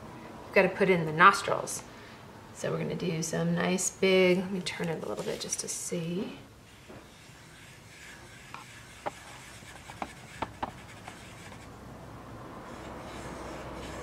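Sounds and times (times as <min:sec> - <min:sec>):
marker scratching on paper: 0:05.0 - 0:05.7, 0:06.7 - 0:11.7, 0:12.6 - 0:14.0.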